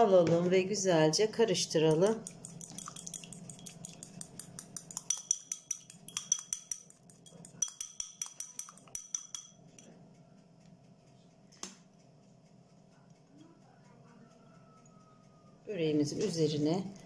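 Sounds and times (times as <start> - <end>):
fork clinking against glass bowl: 1.9 - 9.9.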